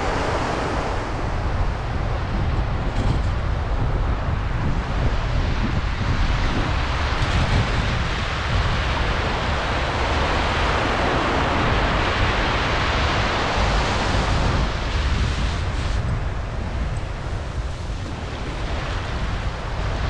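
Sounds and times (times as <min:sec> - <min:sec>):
surf washing onto beach: 0:00.0 - 0:20.0
wind buffeting microphone: 0:00.0 - 0:20.0.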